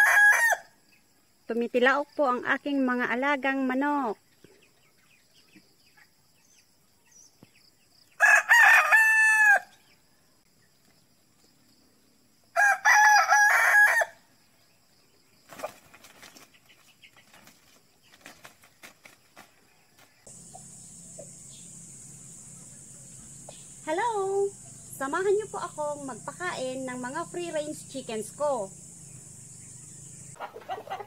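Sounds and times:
rooster crowing: 0.0s - 0.7s, 8.2s - 9.8s, 12.5s - 14.2s.

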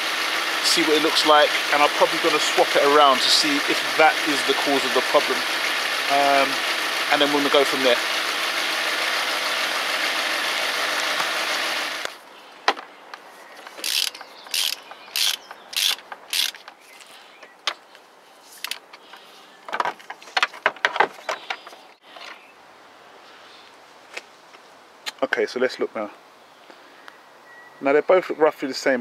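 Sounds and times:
misfiring engine idling: 0.0s - 12.2s
ratchet wrench clicking: 13.8s - 16.7s.

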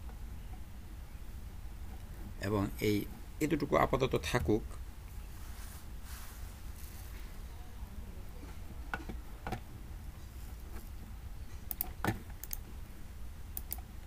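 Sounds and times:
low steady hum: 0.0s - 14.0s
keyboard and mouse clicks: 11.7s - 12.6s, 13.6s - 13.9s.

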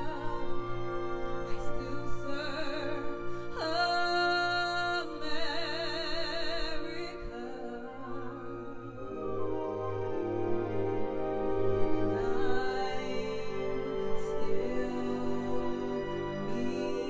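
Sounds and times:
woman singing with vibrato: 0.0s - 9.7s, 12.1s - 17.0s
symphony orchestra chords: 0.0s - 17.0s.

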